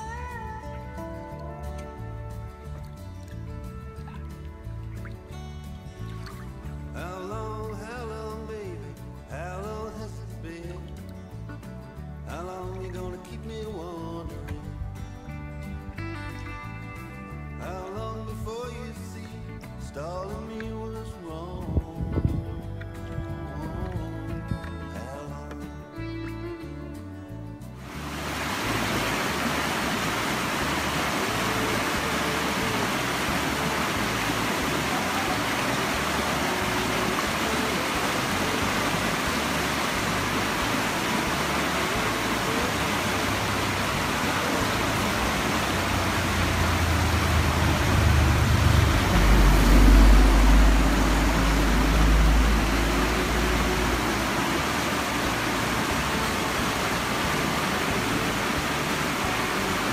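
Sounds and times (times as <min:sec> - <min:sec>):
river rushing over rocks: 0:27.8 - 0:59.9
low rumble: 0:44.0 - 0:59.9.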